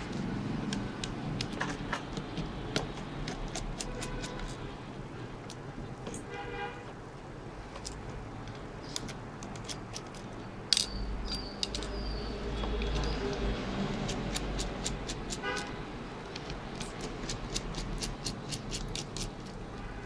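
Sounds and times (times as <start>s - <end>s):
low traffic rumble: 0.0s - 20.0s
vehicle horn honking: 6.3s - 6.9s, 15.4s - 15.8s.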